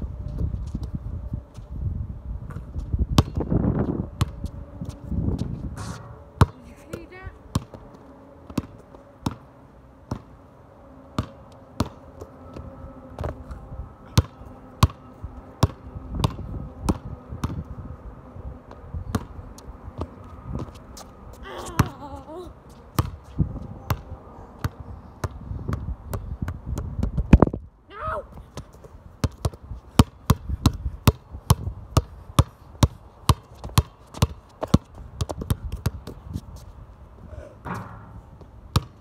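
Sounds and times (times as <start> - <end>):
wind rumble on microphone: 0.0 - 8.9, 12.4 - 39.0
basketball bouncing: 5.8 - 7.8, 11.2 - 12.0, 14.2 - 15.0, 15.6 - 17.6, 22.9 - 23.2, 29.2 - 36.2, 37.7 - 39.0.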